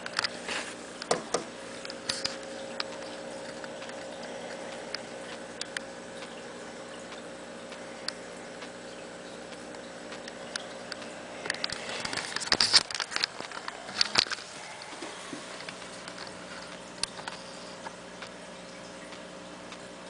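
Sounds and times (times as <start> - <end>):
aquarium hiss: 0.0 - 20.0
faint hum: 0.0 - 20.0
small sharp ticks: 1.8 - 14.4.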